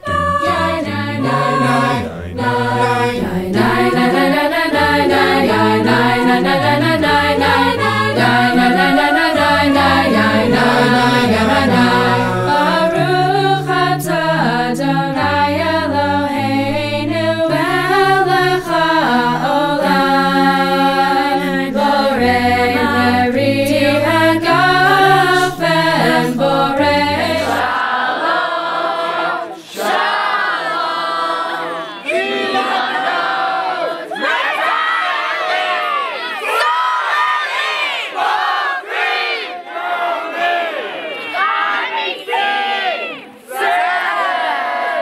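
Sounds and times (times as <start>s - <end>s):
group singing in harmony: 0.0s - 45.0s
crowd shouting and cheering: 8.2s - 12.6s, 29.4s - 45.0s.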